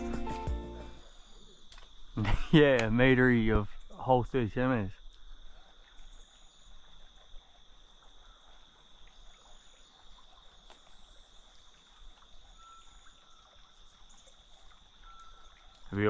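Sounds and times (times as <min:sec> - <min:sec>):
insects droning: 0:00.0 - 0:16.0
thin whistled note: 0:12.6 - 0:13.4.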